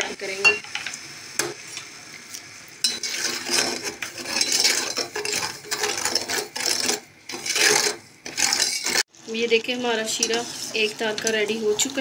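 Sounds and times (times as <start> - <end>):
metal spoon scraping a saucepan: 2.8 - 9.1, 10.0 - 12.0.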